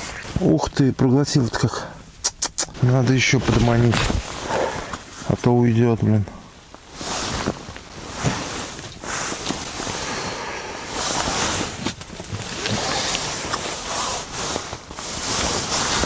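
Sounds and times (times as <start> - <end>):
wind against tent: 2.7 - 5.4, 6.6 - 16.0.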